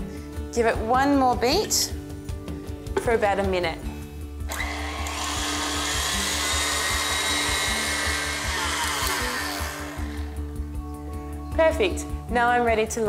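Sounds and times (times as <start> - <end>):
electric stand mixer whirring: 4.5 - 10.5.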